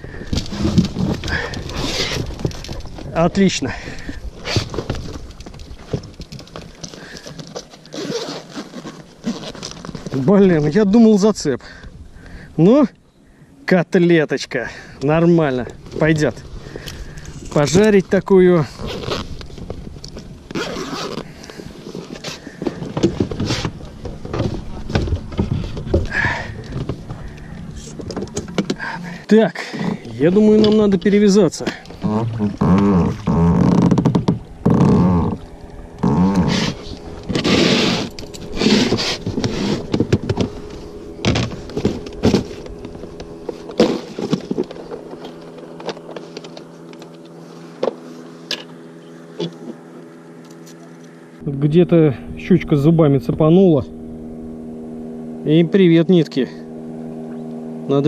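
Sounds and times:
fishing gear knocking and rustling: 0.0s - 10.8s, 15.6s - 51.2s.

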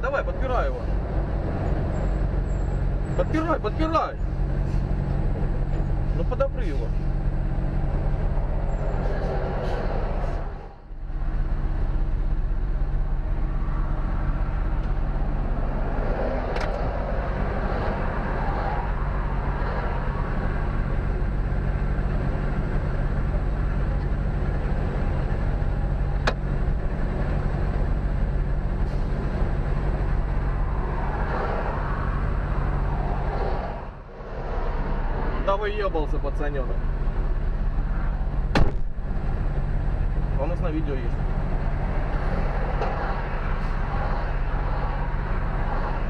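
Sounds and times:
diesel engine idling: 0.0s - 16.2s, 16.9s - 46.0s.

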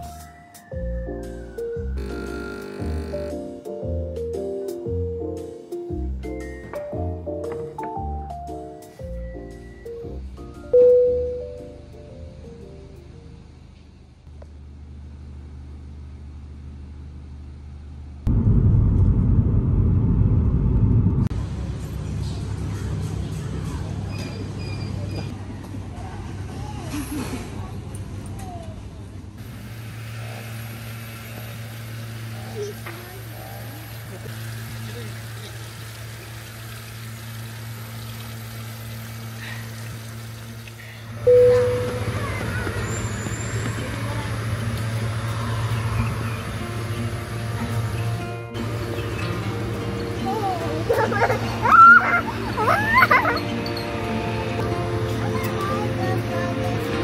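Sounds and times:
low hum: 10.8s - 21.8s
rough outdoor rumble: 12.2s - 24.1s, 25.2s - 57.0s
car driving rumble from inside: 18.2s - 21.3s
small waterfall splashing: 33.9s - 40.8s
short loud tone: 41.2s - 43.2s.

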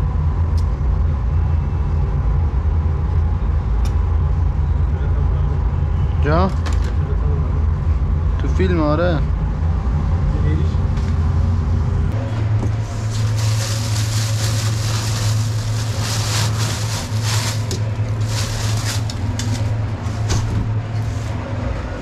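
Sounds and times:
kitchen equipment hum: 9.4s - 22.0s.

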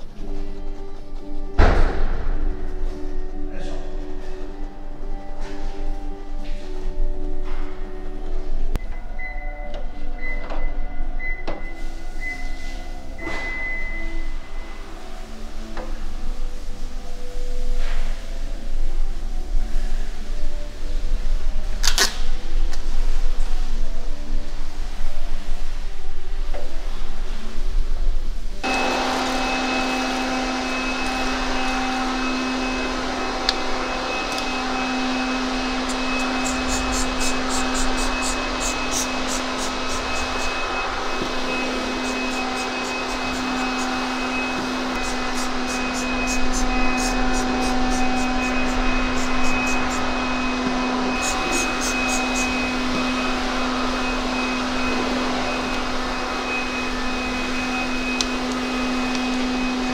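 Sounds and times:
motor humming: 28.6s - 59.9s
brush scrubbing car wheel: 33.8s - 52.8s.

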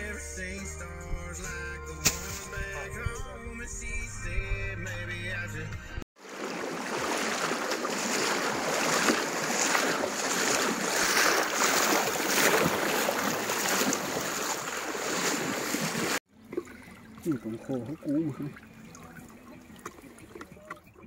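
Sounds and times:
river water rushing: 6.2s - 20.4s.

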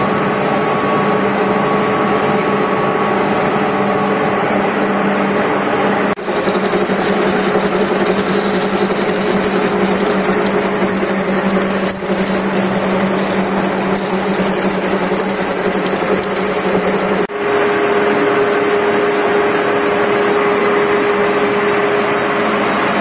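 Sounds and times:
machine hum: 5.6s - 23.0s
steel balls rushing: 6.2s - 23.0s.

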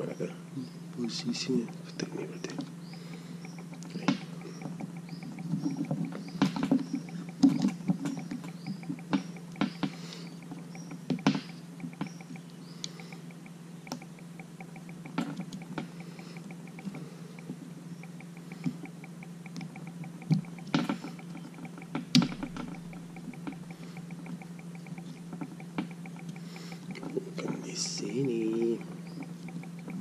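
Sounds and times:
steady low hum: 0.0s - 30.0s
microphone handling clicks and knocks: 1.5s - 13.2s, 18.5s - 30.0s.

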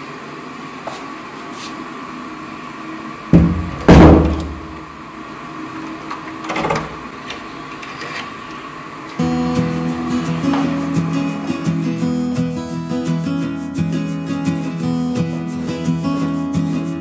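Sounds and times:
door shutting with heavy thuds: 3.4s - 4.8s.

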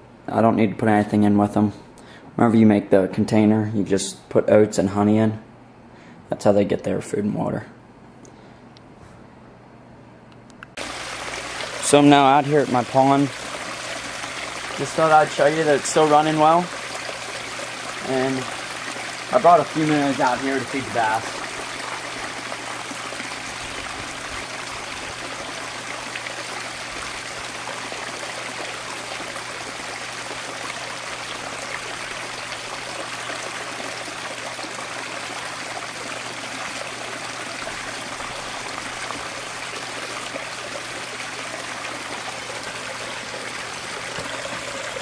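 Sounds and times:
small waterfall splashing into pond: 10.8s - 45.0s.

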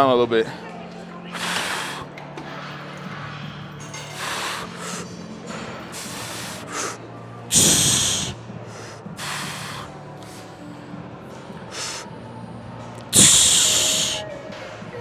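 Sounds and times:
man exhaling forcefully: 7.5s - 8.4s, 13.2s - 14.2s.

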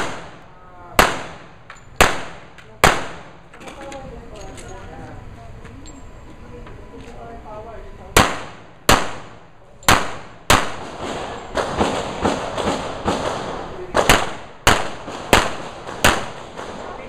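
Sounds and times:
loud handgun shots with echo: 0.0s - 3.4s, 8.1s - 17.0s.

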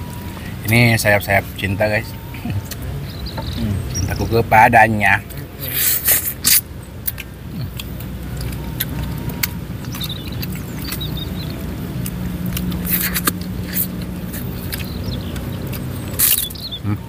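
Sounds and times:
low motor hum: 0.0s - 4.5s, 6.6s - 17.0s
crunching while eating: 5.7s - 17.0s.

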